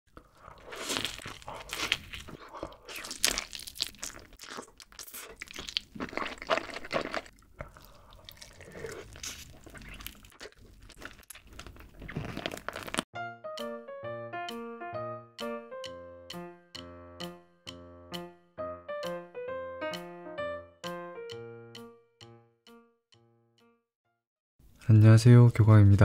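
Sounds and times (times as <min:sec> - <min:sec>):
person biting and chewing food: 0:00.1 - 0:13.1.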